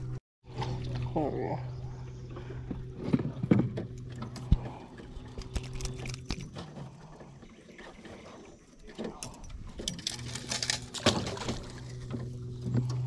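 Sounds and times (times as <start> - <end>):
steady low hum: 0.0 - 13.0
knocks and clicks in aluminum boat: 2.4 - 13.0.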